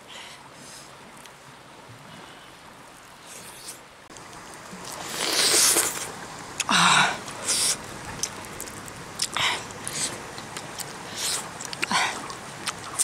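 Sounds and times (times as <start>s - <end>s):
person chewing crispy fish: 4.2s - 6.7s, 7.4s - 13.0s.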